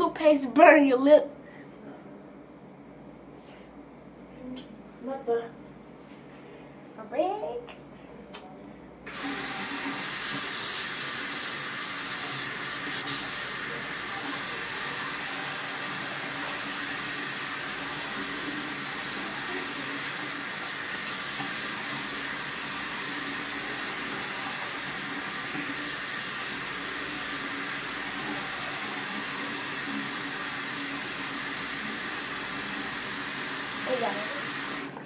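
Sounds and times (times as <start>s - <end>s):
water running from sink tap: 9.1s - 35.0s.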